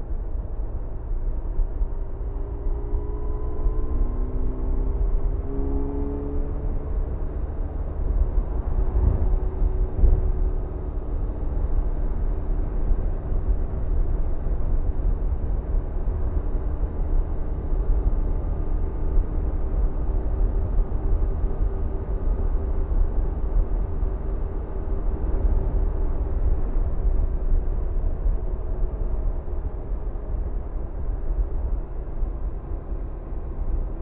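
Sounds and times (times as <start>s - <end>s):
road noise: 0.0s - 34.0s
wind noise: 8.1s - 16.6s.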